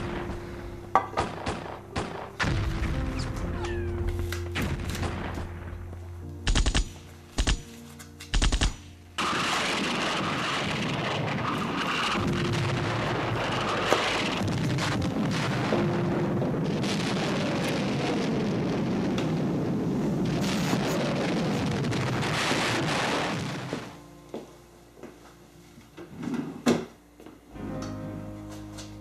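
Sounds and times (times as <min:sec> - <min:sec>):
machine-gun fire crackling: 0:01.2 - 0:03.3, 0:04.6 - 0:05.8, 0:06.4 - 0:07.7, 0:08.3 - 0:16.0
gunfire bursts: 0:06.4 - 0:07.7, 0:08.3 - 0:12.5.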